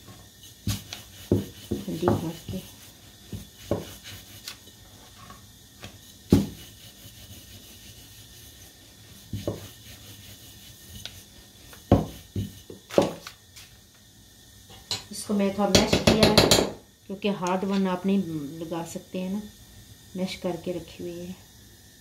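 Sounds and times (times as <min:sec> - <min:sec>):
knocks on wooden board: 0:06.3 - 0:06.6, 0:11.9 - 0:13.2.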